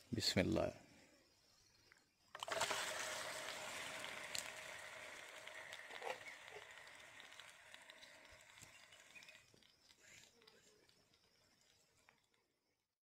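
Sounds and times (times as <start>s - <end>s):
chicken sizzling in hot ghee: 2.4s - 12.1s.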